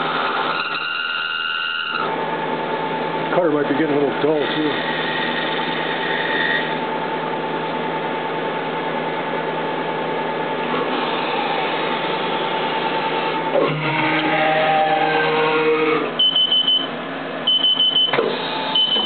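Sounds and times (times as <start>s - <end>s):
milling machine spindle whine: 0.0s - 2.2s, 2.8s - 6.9s, 10.7s - 19.0s.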